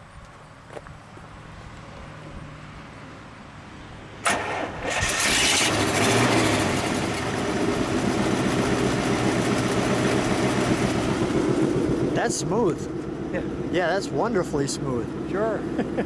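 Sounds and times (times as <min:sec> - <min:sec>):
starter motor cranking: 0:04.3 - 0:07.5
car engine idling: 0:04.3 - 0:16.0.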